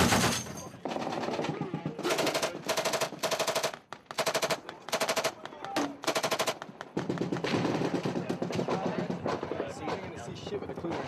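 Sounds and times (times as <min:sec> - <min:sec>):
automatic gunfire bursts: 0:00.0 - 0:05.4, 0:06.0 - 0:08.3.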